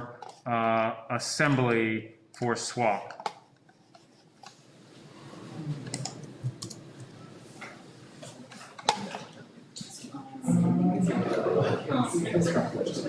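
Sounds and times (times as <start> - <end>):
keyboard typing clicks: 5.8 - 7.1
murmur of students talking: 8.9 - 13.0.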